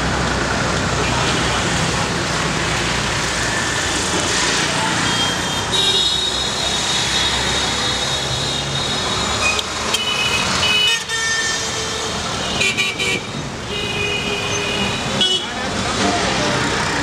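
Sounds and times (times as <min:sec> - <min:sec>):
traffic engines and tyres: 0:00.0 - 0:17.0
vehicle horns: 0:05.1 - 0:15.6.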